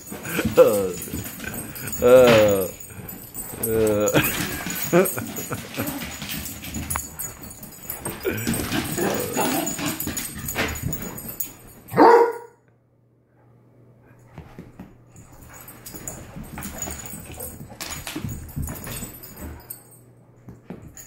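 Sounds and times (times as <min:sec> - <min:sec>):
dog paws scrabbling on hardwood floor: 0:00.0 - 0:12.4, 0:14.3 - 0:21.0
dog barking loudly: 0:12.0 - 0:12.5.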